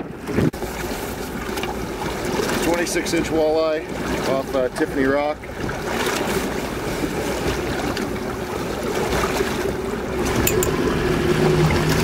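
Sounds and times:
wind on microphone: 0:00.0 - 0:00.6
water noise around boat: 0:00.0 - 0:12.0.

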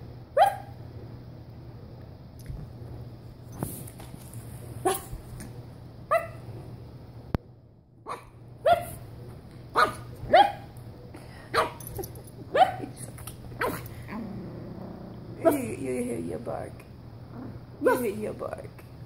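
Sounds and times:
puppy barking: 0:00.4 - 0:00.7, 0:04.8 - 0:05.2, 0:06.1 - 0:06.4, 0:08.1 - 0:09.0, 0:09.7 - 0:10.8, 0:11.5 - 0:11.8, 0:12.5 - 0:13.0.

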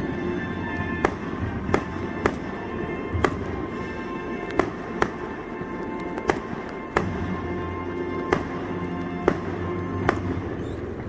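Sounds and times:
fireworks bursting: 0:00.0 - 0:11.0.

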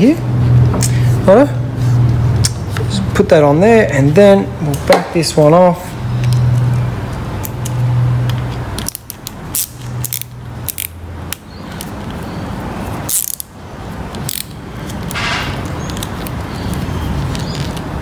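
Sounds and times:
ratchet clicking: 0:07.4 - 0:12.2, 0:13.1 - 0:17.8.

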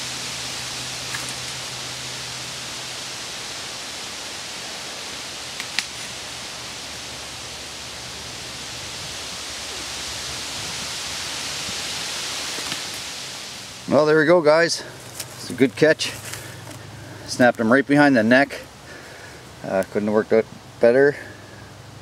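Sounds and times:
steady rushing hiss: 0:00.0 - 0:22.0.

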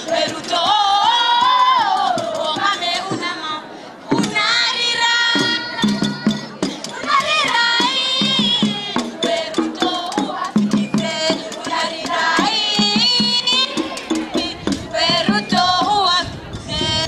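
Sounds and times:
quick repeating drumbeat: 0:05.3 - 0:16.0.

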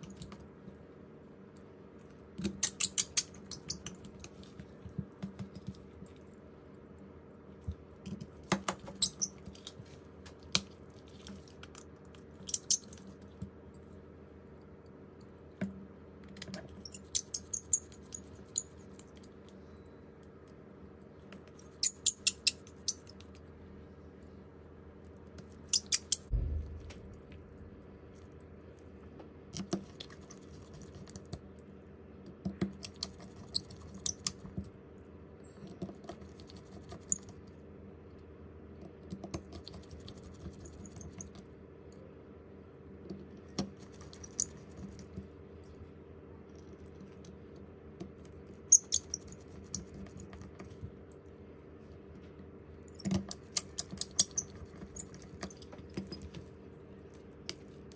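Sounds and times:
steady low hum: 0:22.7 - 0:29.6
dull thump: 0:26.3 - 0:27.3.

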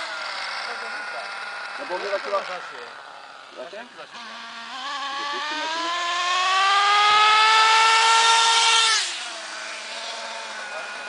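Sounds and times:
small engine accelerating: 0:00.0 - 0:11.0.

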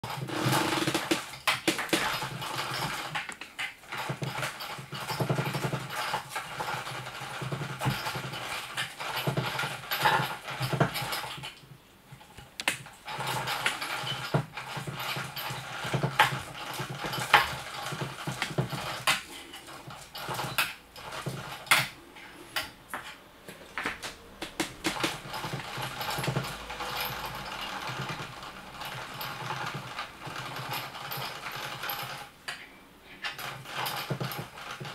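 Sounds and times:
sharp clicks and taps: 0:12.4 - 0:12.8, 0:22.9 - 0:25.2.

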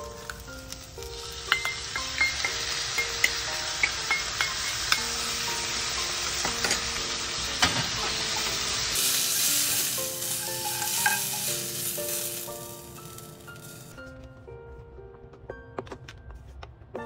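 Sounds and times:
food sizzling in frying pan: 0:00.0 - 0:14.0
metal utensil clicking on pan: 0:01.5 - 0:05.0, 0:09.5 - 0:11.5.

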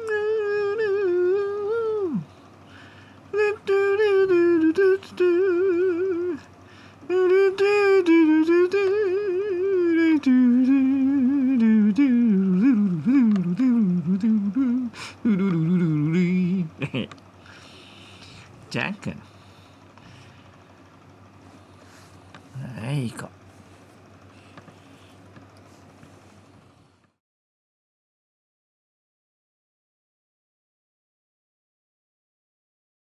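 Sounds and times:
person humming a tune: 0:00.0 - 0:02.4, 0:03.3 - 0:17.1.

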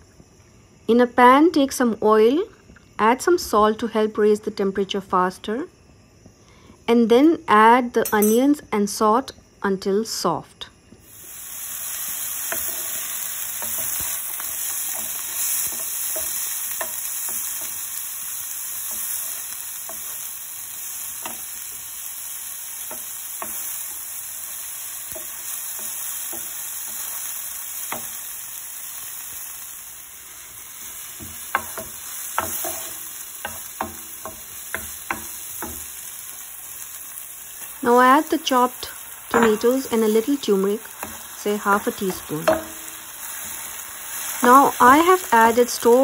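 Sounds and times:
onions sizzling in hot oil: 0:10.8 - 0:46.0.

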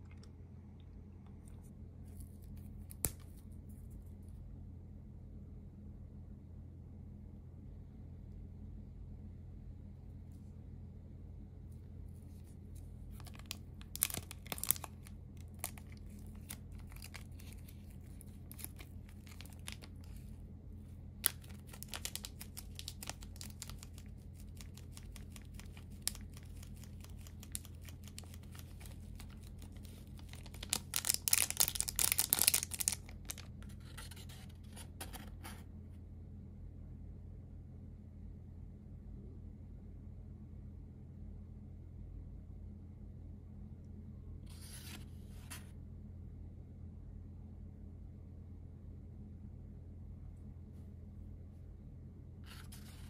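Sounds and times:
faint low hum: 0:00.0 - 0:53.0
food packaging crinkling: 0:13.1 - 0:20.4, 0:21.2 - 0:33.5.

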